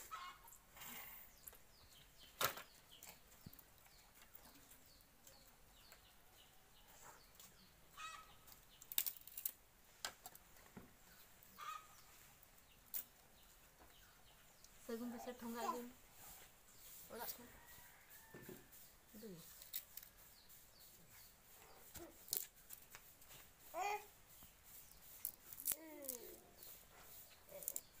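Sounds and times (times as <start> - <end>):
bird chirps: 11.0 - 15.8.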